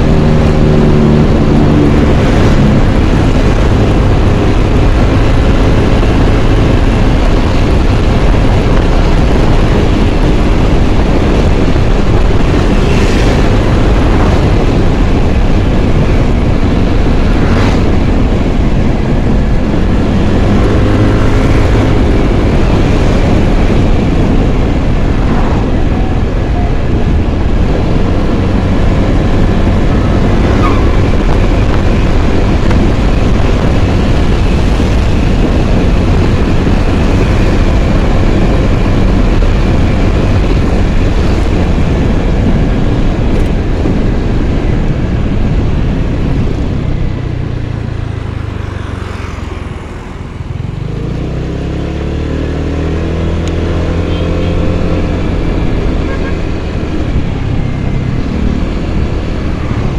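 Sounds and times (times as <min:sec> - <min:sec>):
scooter engine and road noise: 0:00.0 - 0:59.9
vehicles passing: 0:00.0 - 0:59.9
wind rushing on microphone: 0:00.0 - 0:59.9
truck passing: 0:11.7 - 0:37.3, 0:43.8 - 0:59.9.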